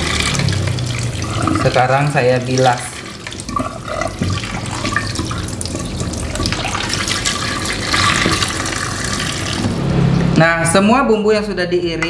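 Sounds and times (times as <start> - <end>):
water splashing on rinsed food: 0.0 - 9.8.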